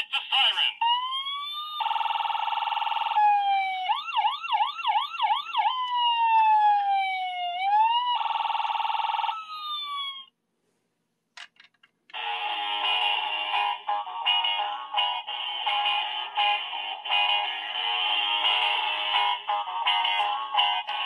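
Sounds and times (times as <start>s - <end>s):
toy electronic siren wailing: 0.8s - 10.3s.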